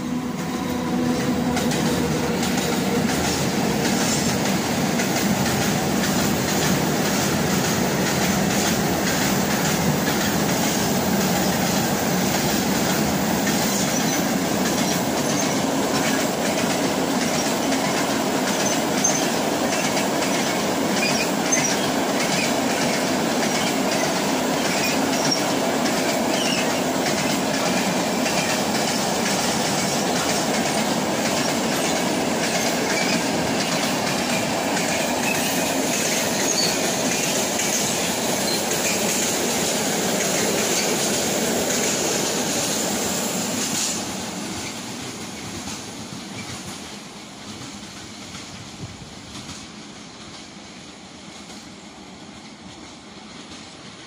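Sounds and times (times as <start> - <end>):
train wheels rumbling on rails: 0.0 - 54.0
high wheel squeals: 20.9 - 22.6, 26.3 - 26.8, 32.5 - 37.0, 37.6 - 39.1.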